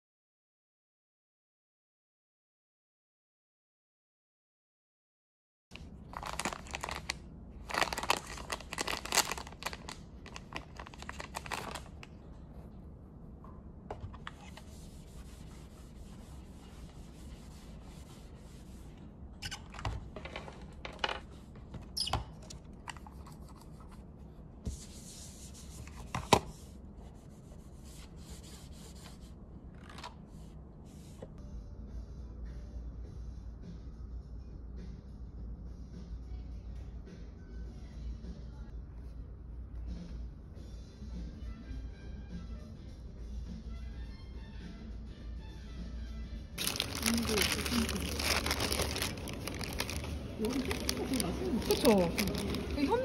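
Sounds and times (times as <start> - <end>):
wrapping crinkling and tearing: 5.8 - 12.1, 46.6 - 53.0
low steady hum: 5.8 - 41.6.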